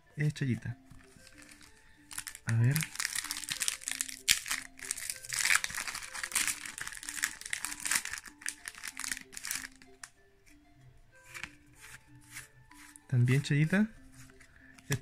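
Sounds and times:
soft background music: 0:00.0 - 0:15.0
plastic wrapper crinkling: 0:00.9 - 0:10.0.

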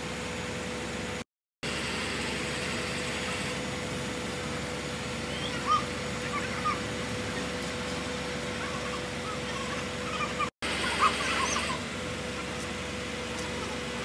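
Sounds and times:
crane engine humming: 0:00.0 - 0:14.0
small birds chirping: 0:08.6 - 0:12.7.

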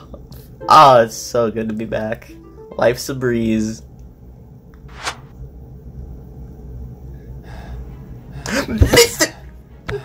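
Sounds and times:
low steady rumble: 0:00.0 - 0:08.5
person speaking: 0:00.6 - 0:03.9.

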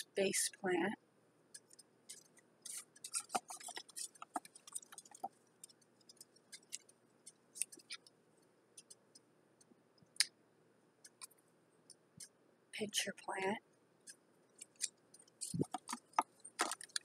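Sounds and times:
paper packets crinkling: 0:02.7 - 0:05.3, 0:14.8 - 0:17.0.

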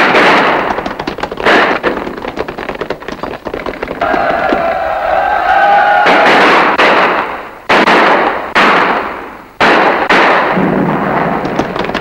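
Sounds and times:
shell explosions: 0:00.0 - 0:02.5, 0:06.0 - 0:12.0.

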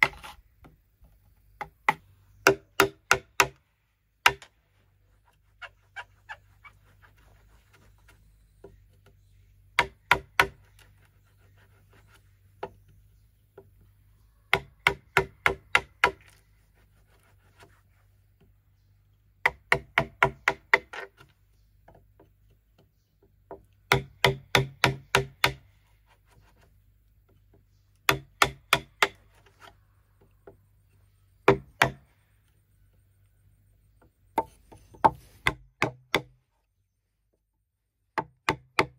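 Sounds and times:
hand tool knocking on bamboo: 0:01.6 - 0:03.6, 0:04.2 - 0:04.5, 0:09.8 - 0:10.7, 0:14.5 - 0:16.2, 0:19.4 - 0:25.6, 0:27.3 - 0:29.2, 0:31.4 - 0:32.0, 0:34.0 - 0:36.4, 0:38.2 - 0:38.9.

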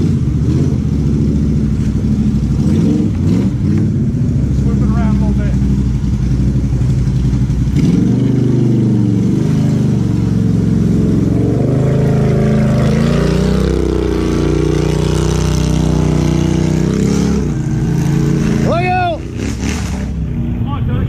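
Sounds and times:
atv engine revving: 0:00.0 - 0:21.0.

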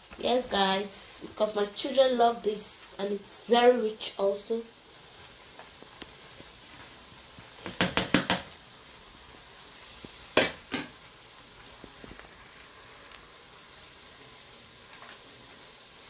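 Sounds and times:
knocks on cooking pot: 0:07.6 - 0:08.5, 0:10.4 - 0:11.0.

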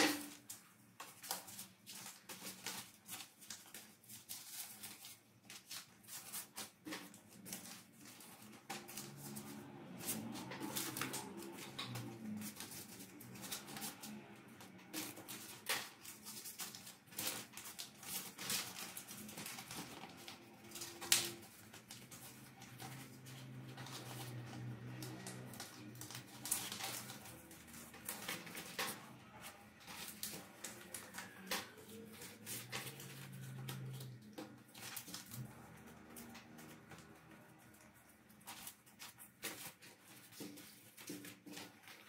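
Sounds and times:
plastic sleeves crinkling: 0:00.0 - 0:42.0.

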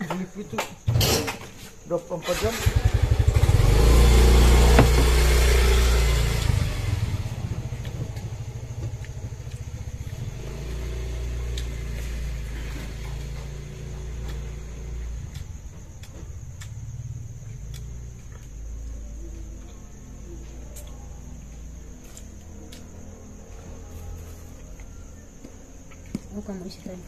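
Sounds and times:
small motorcycle engine running: 0:02.3 - 0:17.3.

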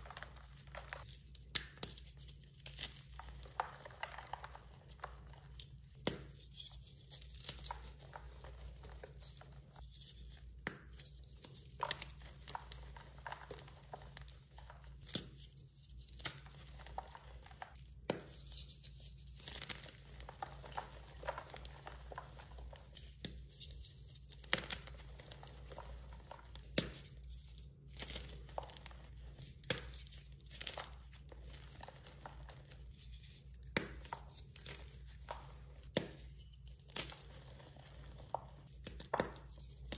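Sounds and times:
sharp snaps of chalk breaking: 0:01.0 - 0:03.5.

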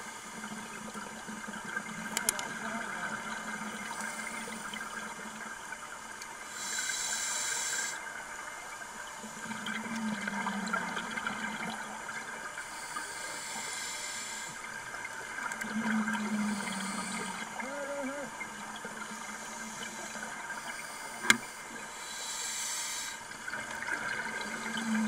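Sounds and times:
scuba regulator inhale hiss: 0:06.5 - 0:08.1, 0:12.6 - 0:14.6, 0:16.3 - 0:17.4, 0:19.2 - 0:23.2
bubbling of exhaled air: 0:15.6 - 0:21.2.

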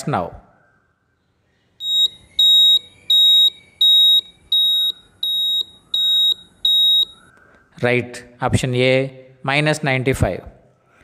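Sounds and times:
high electronic timer beeps: 0:01.8 - 0:07.3.

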